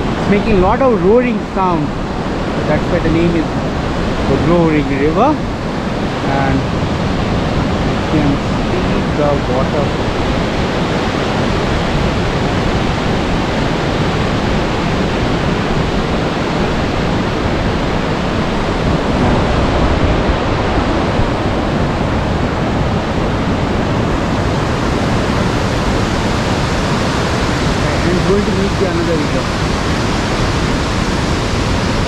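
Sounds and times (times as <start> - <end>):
river rushing over boulders: 0.0 - 32.0.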